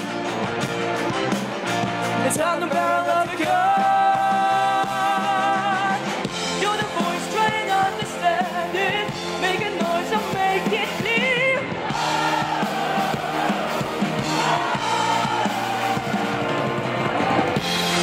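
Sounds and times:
live pop-rock band playing: 0.0s - 18.0s.

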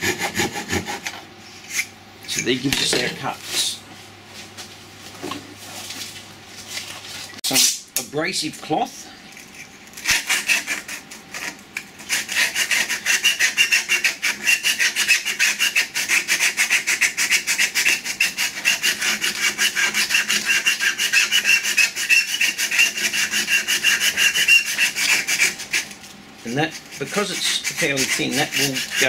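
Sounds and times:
abrasive cloth rubbing wood: 18.8s - 29.0s.

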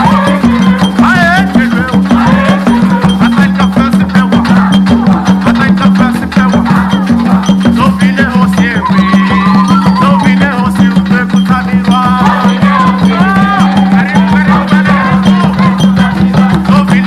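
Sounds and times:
women singing together: 0.0s - 3.3s, 4.3s - 5.4s, 6.5s - 7.6s, 8.8s - 10.8s, 11.8s - 17.0s
shakers and percussion beat: 0.0s - 17.0s.

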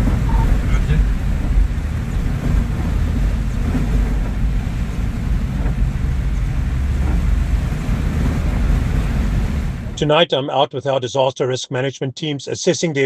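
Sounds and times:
rain: 0.0s - 10.0s
wind noise: 0.0s - 10.0s
vehicle rumbling: 0.0s - 10.2s.

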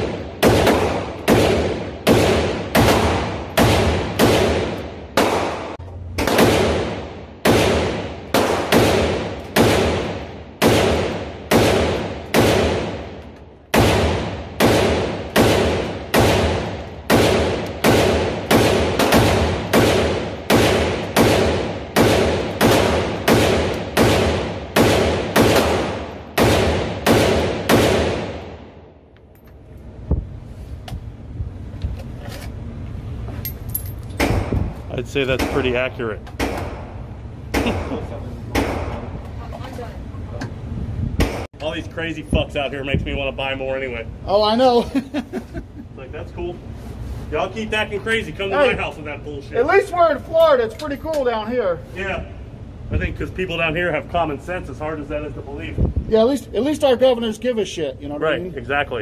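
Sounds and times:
rifle shots echoing indoors: 0.0s - 28.9s.

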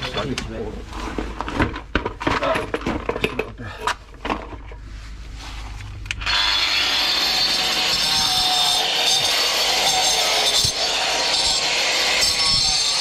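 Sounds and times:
reciprocating saw cutting pipe: 6.2s - 13.0s.

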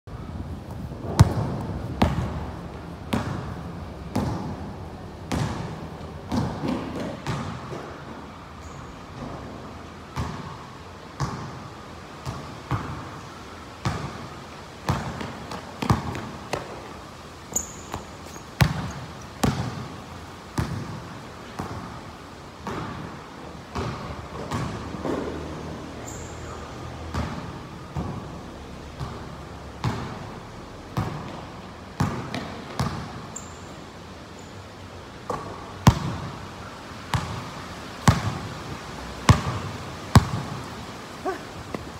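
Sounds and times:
basketball bouncing on concrete: 1.0s - 2.5s, 3.1s - 4.6s, 5.3s - 8.0s, 14.9s - 16.8s, 17.6s - 19.9s, 20.6s - 21.0s, 22.6s - 23.1s, 23.7s - 25.5s, 29.0s - 30.2s, 31.0s - 31.4s, 32.0s - 33.2s, 35.3s - 36.3s, 37.1s - 38.5s, 39.3s - 40.6s.

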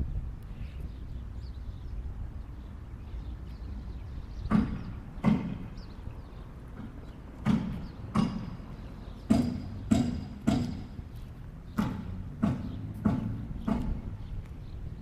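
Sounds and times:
sharp ringing knocks: 4.5s - 5.7s, 6.8s - 11.1s, 11.8s - 14.1s.

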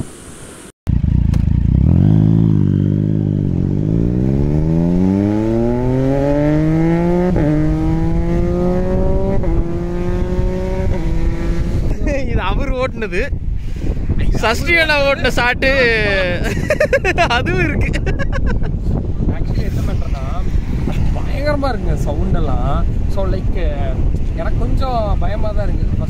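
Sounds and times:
motorcycle engine accelerating: 0.9s - 12.0s.

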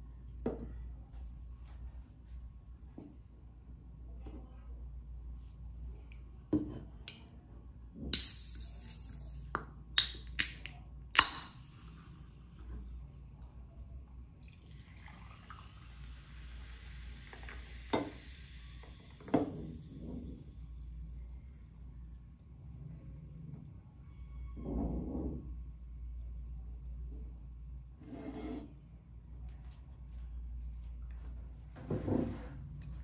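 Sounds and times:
can clicks and opening hiss: 8.1s - 11.8s
carbonated drink fizzing: 14.4s - 24.7s.

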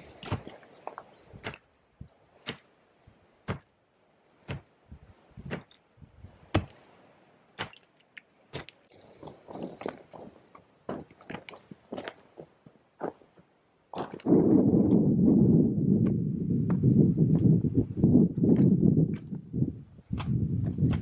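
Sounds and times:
footsteps crunching on gravel: 8.6s - 14.3s.

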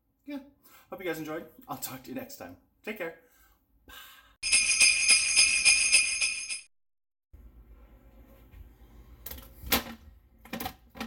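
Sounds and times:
jingle bells shaken: 4.4s - 6.7s.

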